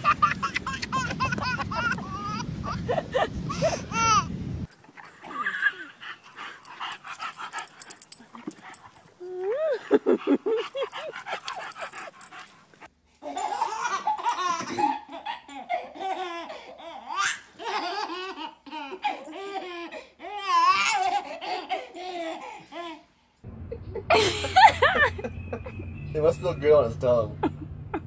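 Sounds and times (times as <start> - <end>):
baby laughing: 0.0 - 4.3, 5.2 - 6.0, 13.2 - 23.0.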